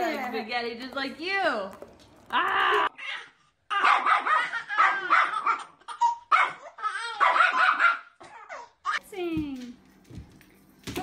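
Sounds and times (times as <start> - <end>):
small dog barking: 3.8 - 5.6, 6.3 - 8.2.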